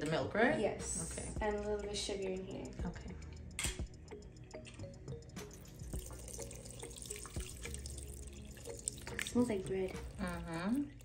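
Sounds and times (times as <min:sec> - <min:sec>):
liquid splashing and trickling: 0:05.4 - 0:11.0.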